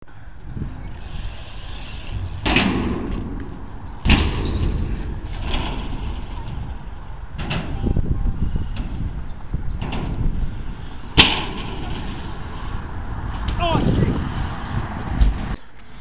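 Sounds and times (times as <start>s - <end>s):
bike tyres rolling on concrete: 0.0s - 16.0s
bike wheels knocking on ramps: 1.1s - 12.7s.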